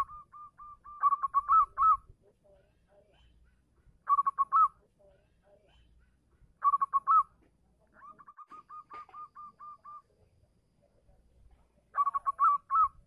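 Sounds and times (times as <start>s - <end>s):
dove cooing song: 0.0s - 2.1s, 4.0s - 4.8s, 6.6s - 7.4s, 8.0s - 10.1s, 11.9s - 13.0s.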